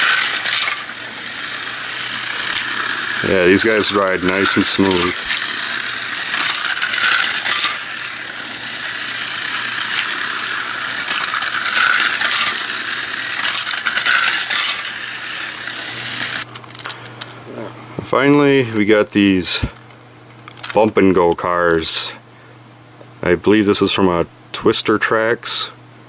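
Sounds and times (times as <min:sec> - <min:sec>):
wheels clicking over track links: 0:00.0 - 0:16.9
toy car motors whirring: 0:00.0 - 0:17.0.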